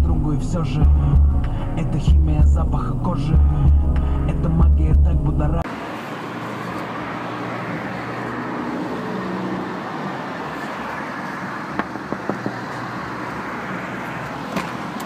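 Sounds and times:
road traffic: 0:05.5 - 0:15.0.

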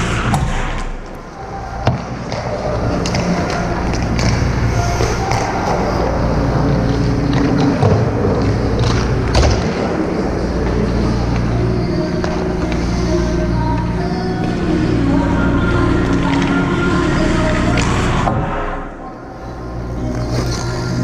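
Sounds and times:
steady low hum: 0:00.0 - 0:21.0
skates scraping on ice: 0:01.6 - 0:13.9.

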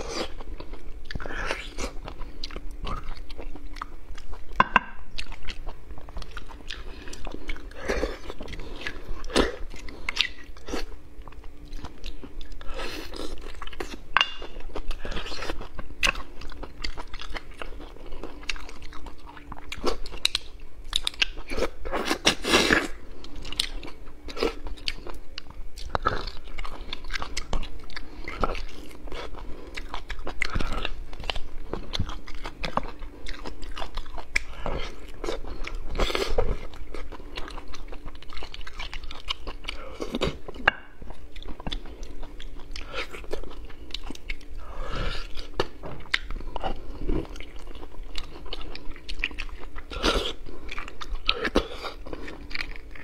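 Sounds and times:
wet chewing and mouth smacks: 0:14.7 - 0:44.6, 0:45.2 - 0:53.0.

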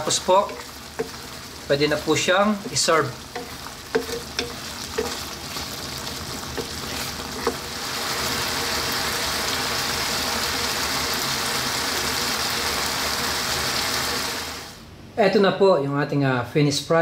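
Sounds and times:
wooden spatula knocking pan: 0:00.0 - 0:01.4, 0:02.0 - 0:05.3, 0:06.3 - 0:07.7
sauce sizzling and bubbling: 0:00.0 - 0:14.8.

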